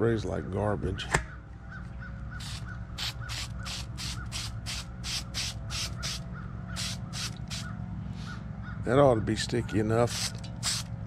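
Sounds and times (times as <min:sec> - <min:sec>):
sharp click: 0:01.1 - 0:01.3
aerosol can sputtering hisses: 0:02.4 - 0:06.2, 0:06.8 - 0:07.7, 0:10.1 - 0:10.9.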